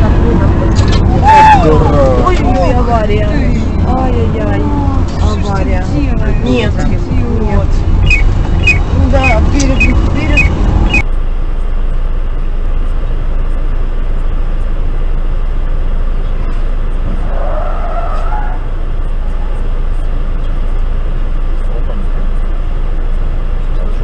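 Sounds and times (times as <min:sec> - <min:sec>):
tyres skidding: 0:00.0 - 0:11.1, 0:11.8 - 0:24.0
car driving on road: 0:00.0 - 0:24.0.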